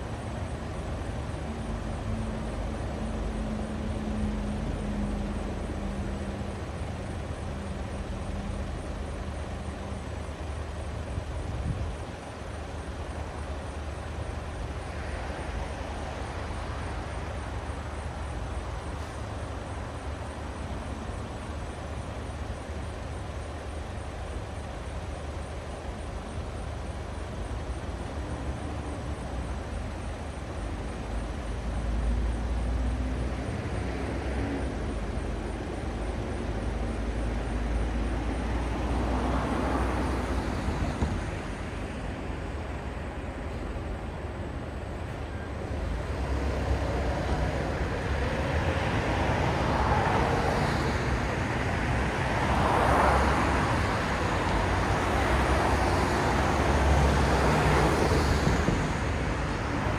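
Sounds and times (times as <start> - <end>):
deep traffic rumble: 0.0 - 59.9
street traffic hum: 0.0 - 59.9.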